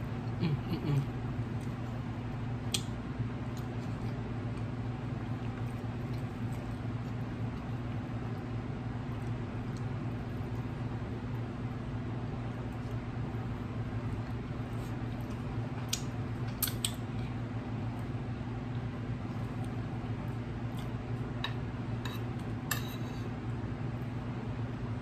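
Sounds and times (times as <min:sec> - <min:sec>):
steady low hum: 0:00.0 - 0:25.0
chewing smacks: 0:02.6 - 0:10.8, 0:18.7 - 0:21.0.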